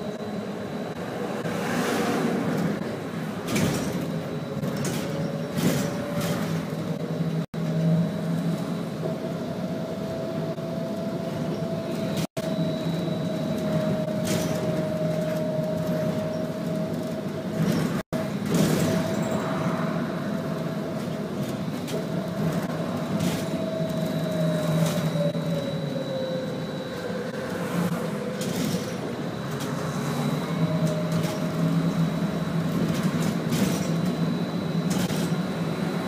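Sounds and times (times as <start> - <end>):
road noise: 0.0 - 36.0
vehicle body rattles: 2.6 - 7.7, 13.6 - 19.5, 30.6 - 35.6.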